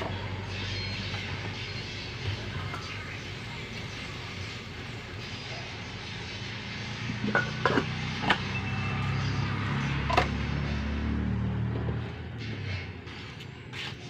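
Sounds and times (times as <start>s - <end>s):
metal pot lid clinking: 7.2s - 8.4s.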